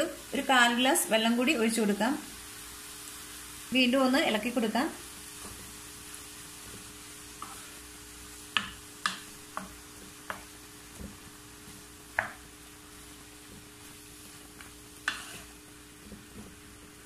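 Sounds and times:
faint sizzle of food: 0:00.0 - 0:17.0
spatula stirring in frying pan: 0:05.0 - 0:17.0
spatula knocking against pan: 0:08.6 - 0:11.1, 0:12.1 - 0:12.4.

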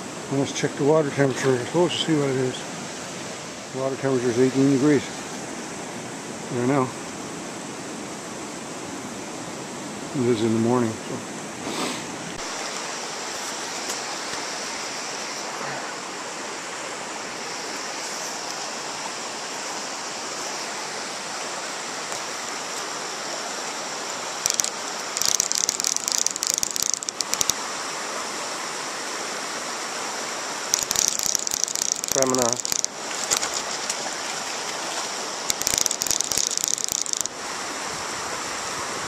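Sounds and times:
river current over rocks: 0:11.5 - 0:39.0
fishing reel drag ratcheting: 0:24.4 - 0:27.6, 0:30.7 - 0:33.7, 0:35.5 - 0:37.3.

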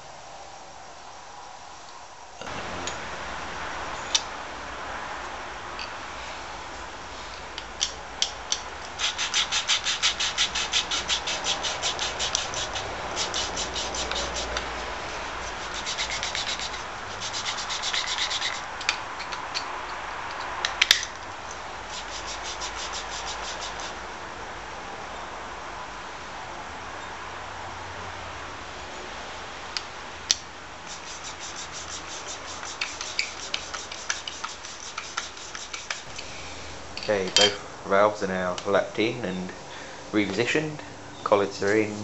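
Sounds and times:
gritty valve lapping strokes: 0:08.8 - 0:19.6, 0:21.8 - 0:24.0, 0:30.8 - 0:36.8.

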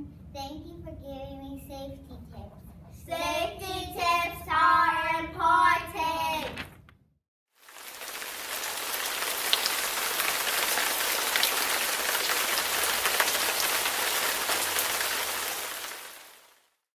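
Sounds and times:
steady rain falling: 0:07.6 - 0:16.8.

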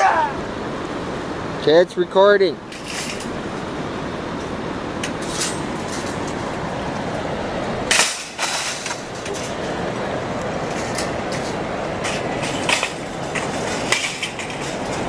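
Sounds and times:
wire basket rattling: 0:02.6 - 0:03.5, 0:05.0 - 0:06.6, 0:07.8 - 0:15.0
shopping cart wheels rumbling: 0:05.2 - 0:15.0.

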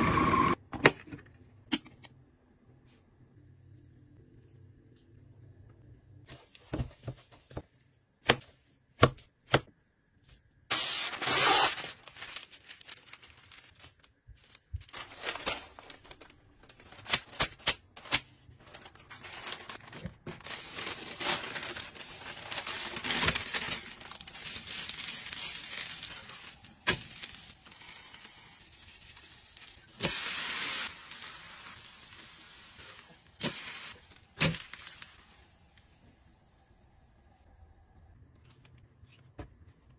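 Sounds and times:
parchment paper crinkling: 0:11.0 - 0:28.1
meat sizzling in a pan: 0:27.2 - 0:35.2.

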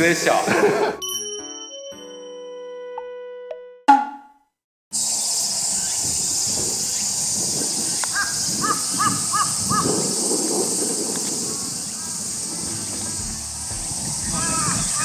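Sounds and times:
high-pitched hiss: 0:05.0 - 0:15.0
crow cawing: 0:08.2 - 0:09.9, 0:14.3 - 0:15.0.

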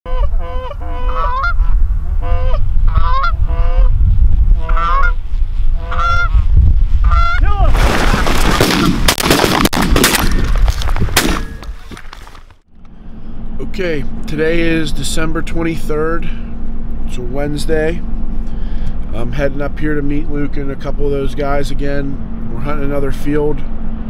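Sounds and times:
geese honking: 0:00.1 - 0:03.9, 0:04.6 - 0:05.2, 0:05.8 - 0:07.4
wind on microphone: 0:00.1 - 0:08.3
sharp cracks: 0:07.6 - 0:12.6
dense noisy rush: 0:12.7 - 0:24.0.

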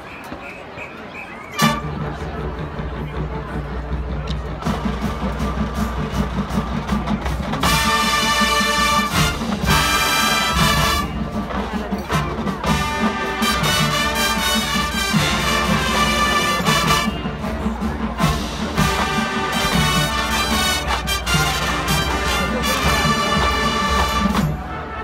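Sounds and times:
marching band playing: 0:01.5 - 0:25.0
brass chords: 0:01.6 - 0:03.4, 0:07.6 - 0:25.0.

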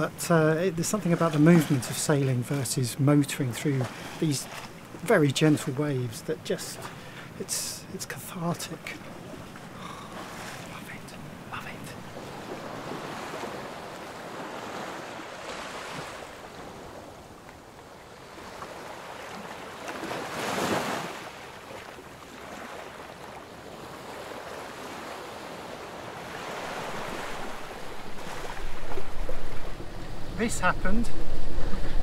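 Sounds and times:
water washing along hull: 0:00.0 - 0:32.0
wind on microphone: 0:27.0 - 0:32.0.

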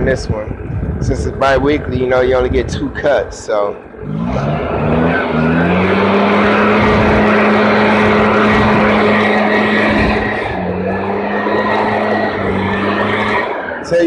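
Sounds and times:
rush of air: 0:00.0 - 0:01.4
leaf blower engine revving: 0:04.0 - 0:14.0.

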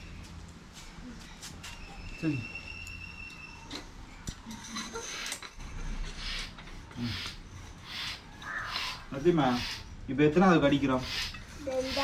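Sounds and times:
air pump hissing: 0:06.0 - 0:09.9, 0:10.9 - 0:12.0.

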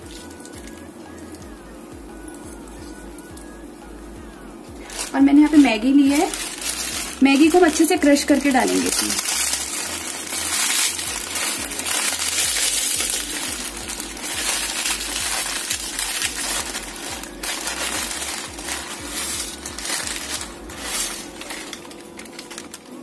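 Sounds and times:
plastic wrapper crinkling: 0:00.0 - 0:00.9, 0:04.8 - 0:23.0
dry noodles snapping: 0:06.3 - 0:23.0.

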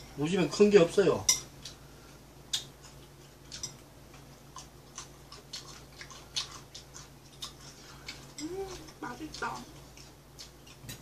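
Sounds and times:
chewing and lip smacks: 0:02.5 - 0:11.0.

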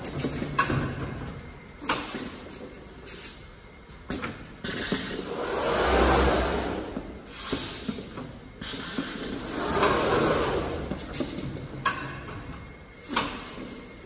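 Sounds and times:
palletizer machinery whooshing: 0:04.9 - 0:07.9, 0:09.1 - 0:11.6.

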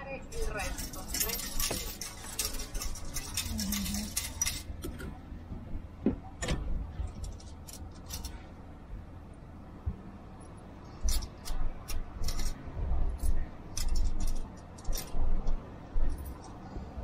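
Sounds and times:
steady low rumble: 0:00.0 - 0:17.0
coins clinking: 0:00.3 - 0:05.0, 0:07.1 - 0:08.4, 0:11.0 - 0:12.6, 0:13.2 - 0:15.2.

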